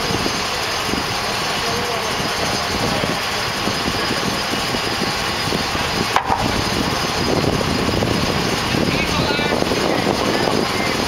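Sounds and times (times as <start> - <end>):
diesel engines running: 0.0 - 11.0.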